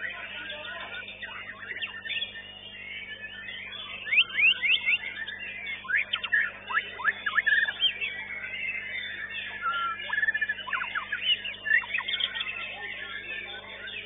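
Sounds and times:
bird singing whistled notes: 0.0s - 14.0s.

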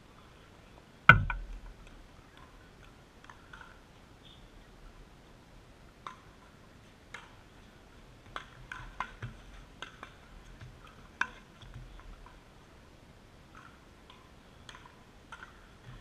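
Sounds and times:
paddles hitting plastic ball: 13.6s - 16.0s.

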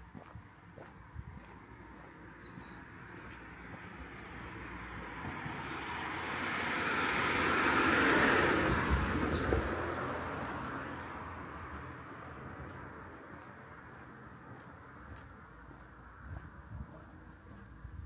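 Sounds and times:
car driving past: 3.2s - 14.0s.

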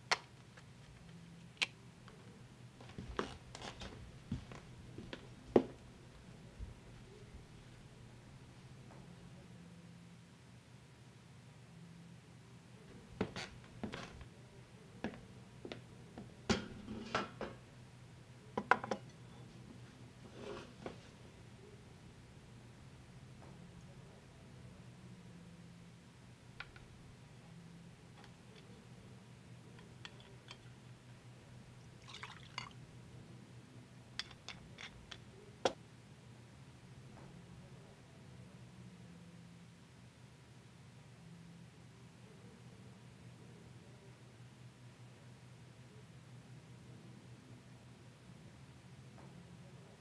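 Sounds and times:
steady low hum: 0.0s - 50.0s
liquid splashing into a glass: 32.0s - 32.8s
glass bottle and tumbler clinking: 32.1s - 32.8s.

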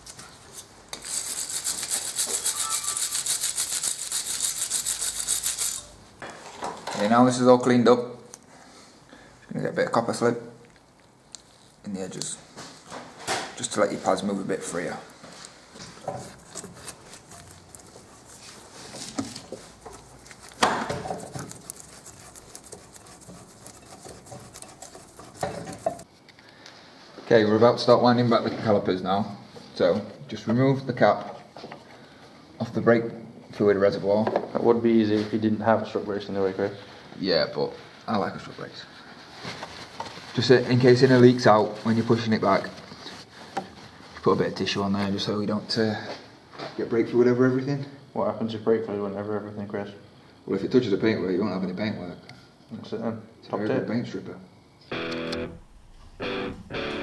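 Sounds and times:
fingers clicking and scraping metal: 0.0s - 5.9s, 16.0s - 18.4s, 19.0s - 26.0s
wire brush scrubbing metal: 0.9s - 6.0s, 16.0s - 26.1s.

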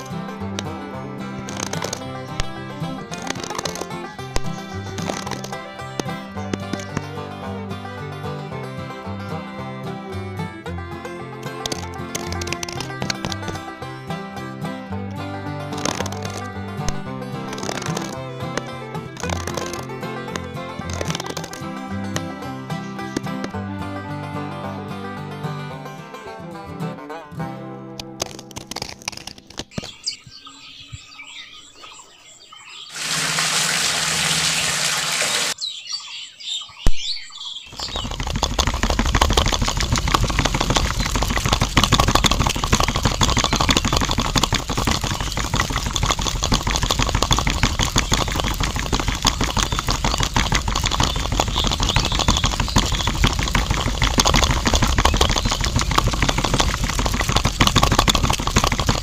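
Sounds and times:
small motor churning wet sand: 0.0s - 7.6s, 11.6s - 13.8s, 15.7s - 23.5s, 32.9s - 35.6s, 37.7s - 59.0s
water pouring into sand: 32.9s - 35.6s, 37.8s - 59.0s.

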